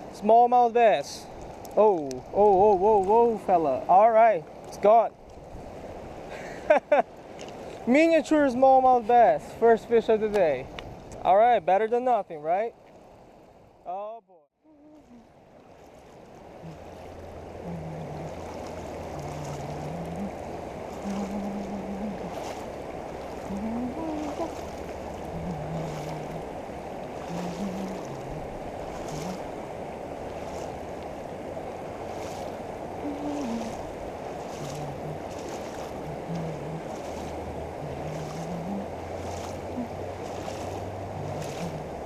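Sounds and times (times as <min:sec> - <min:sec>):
river water rushing over dam: 0:14.9 - 0:42.0.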